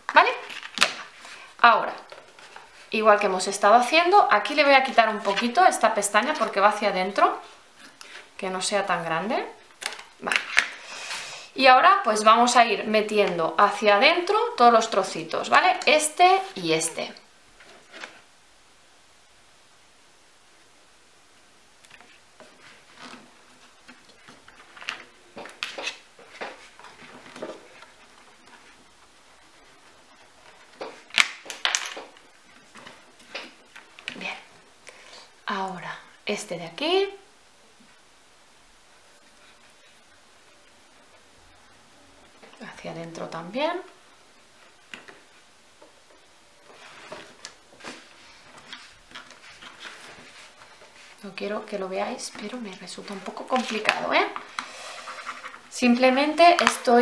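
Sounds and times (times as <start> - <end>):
cardstock rustling: 46.6 - 57.0
cardstock rustling and clicking: 52.3 - 55.7.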